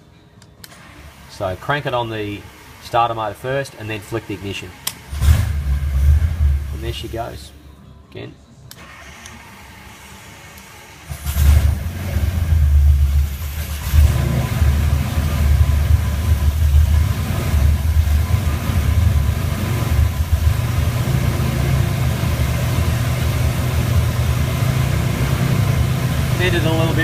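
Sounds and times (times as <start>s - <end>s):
radial aero engine idling: 9.9s - 27.0s.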